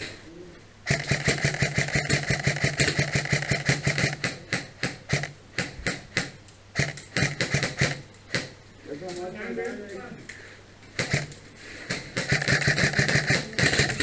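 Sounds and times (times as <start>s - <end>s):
airsoft gun firing: 0.8s - 8.6s, 11.0s - 14.0s.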